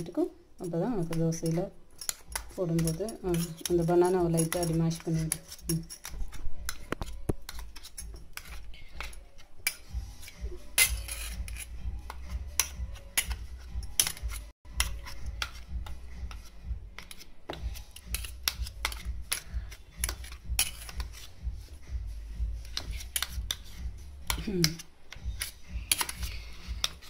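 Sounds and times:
spoon scraping a metal bowl: 0.0s - 22.0s, 22.6s - 27.0s.

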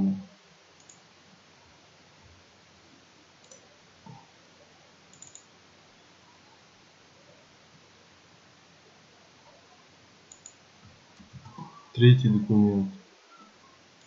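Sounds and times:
faint computer mouse clicks: 0.8s - 1.0s, 3.4s - 4.2s, 5.1s - 5.5s, 10.3s - 10.6s.

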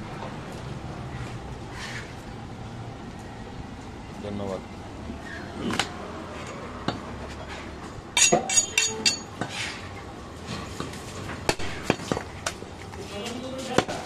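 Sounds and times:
knife and cleaver clinking: 8.2s - 9.4s.

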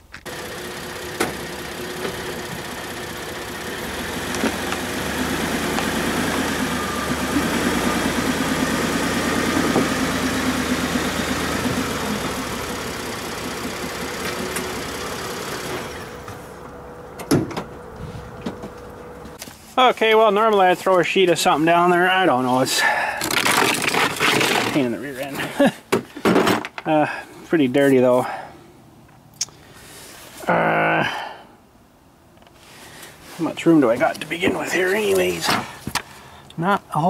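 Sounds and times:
pickup truck engine running slowly: 0.2s - 19.4s.

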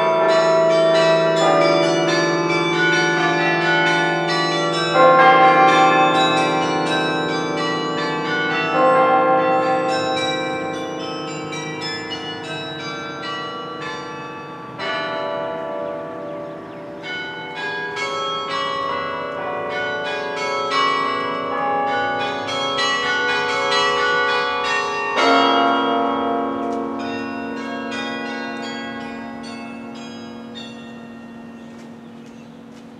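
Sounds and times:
carillon bells playing: 0.0s - 32.0s.

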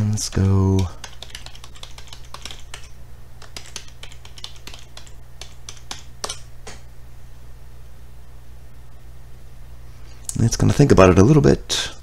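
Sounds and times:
typing on keyboard: 0.0s - 6.4s
steady low hum: 0.0s - 12.0s.

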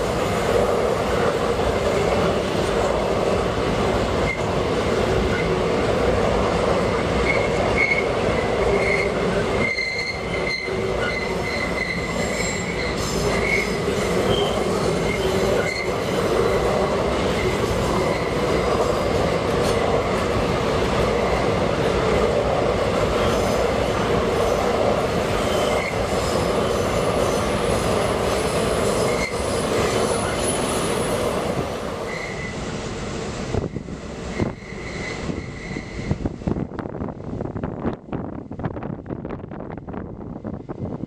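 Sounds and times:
steel wheels rumbling on rail: 0.0s - 41.0s
wheels squealing: 7.2s - 16.1s, 25.3s - 31.2s, 34.3s - 36.2s.

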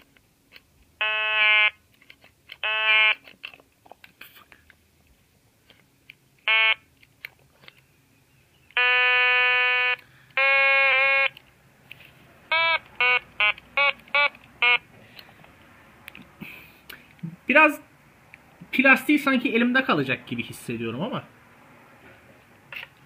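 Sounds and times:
buzzy electronic toy instrument: 8.8s - 11.4s, 12.5s - 14.8s.

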